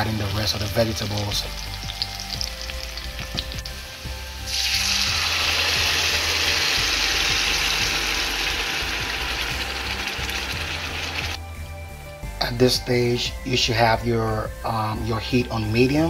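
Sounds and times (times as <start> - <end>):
loud steady sizzle of puree: 0.0 - 11.4
onions frying in oil: 0.0 - 11.4.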